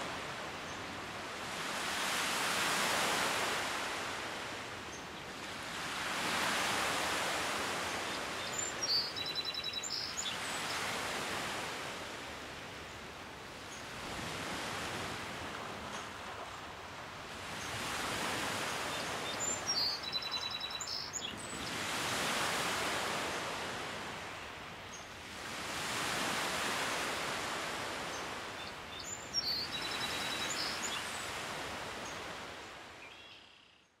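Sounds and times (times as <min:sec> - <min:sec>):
waves washing on shore: 0:00.0 - 0:33.0
songbird trilling: 0:08.4 - 0:10.4, 0:19.5 - 0:21.7.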